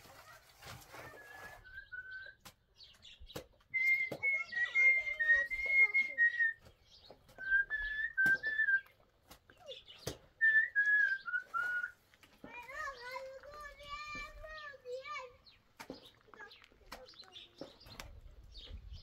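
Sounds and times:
person whistling a tune: 0:03.7 - 0:06.6, 0:07.4 - 0:08.9, 0:10.4 - 0:12.0.

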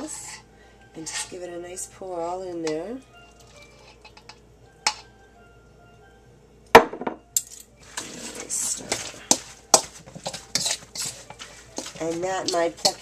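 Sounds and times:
fork clinking against metal bowl: 0:03.4 - 0:05.1, 0:08.9 - 0:13.0.

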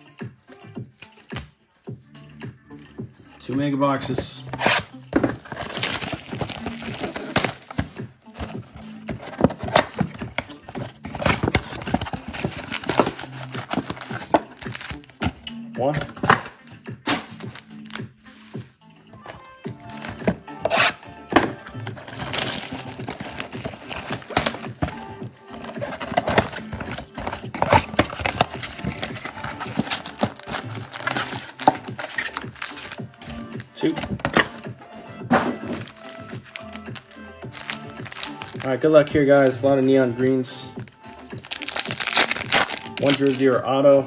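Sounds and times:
cardboard box tearing: 0:04.5 - 0:15.2, 0:19.9 - 0:33.0, 0:37.5 - 0:38.7, 0:41.4 - 0:43.4
foil packs crinkling: 0:04.5 - 0:15.3, 0:21.7 - 0:34.5, 0:35.6 - 0:39.4, 0:41.4 - 0:43.4.

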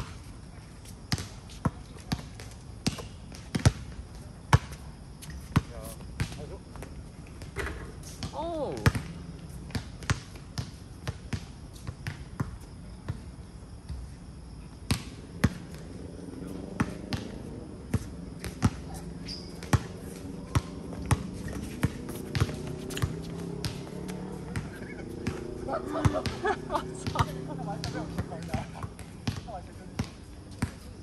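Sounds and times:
basketball bouncing on hard court: 0:08.8 - 0:09.1, 0:17.9 - 0:27.4, 0:28.1 - 0:30.8.

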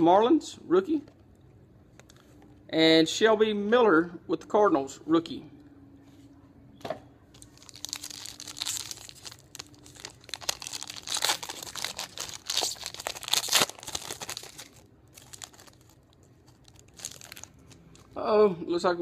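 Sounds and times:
wrapper tearing and crinkling: 0:07.4 - 0:18.2.

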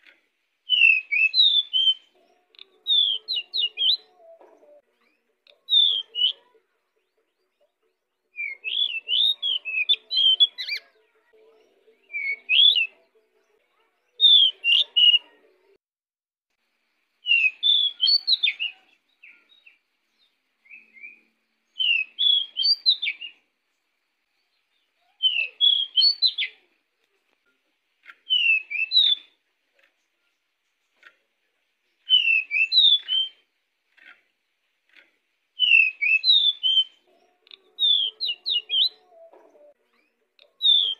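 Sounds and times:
bird singing whistled phrases: 0:00.7 - 0:04.1, 0:05.7 - 0:06.4, 0:08.3 - 0:10.8, 0:12.0 - 0:12.9, 0:14.2 - 0:15.2, 0:17.2 - 0:19.8, 0:20.6 - 0:23.4, 0:25.0 - 0:26.6, 0:28.2 - 0:29.4, 0:32.0 - 0:33.5, 0:35.6 - 0:39.2, 0:40.0 - 0:40.9.

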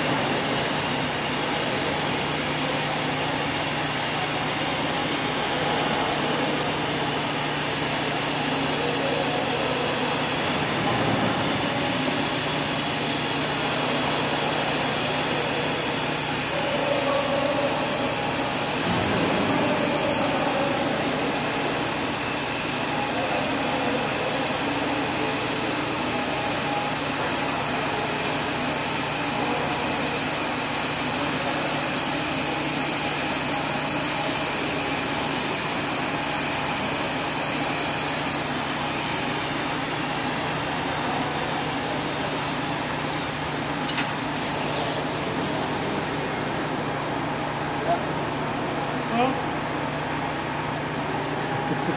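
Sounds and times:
welding arc drone and hiss: 0:00.0 - 0:51.9.

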